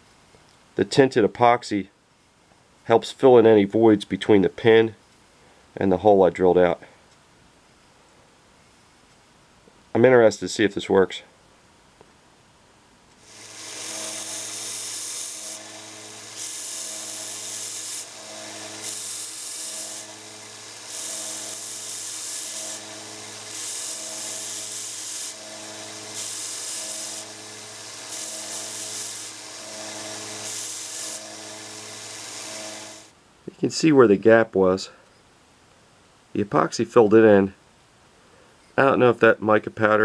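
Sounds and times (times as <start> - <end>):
belt sander running: 13.2 - 33.1
rasping hiss of metal on sanding belt: 13.2 - 33.1.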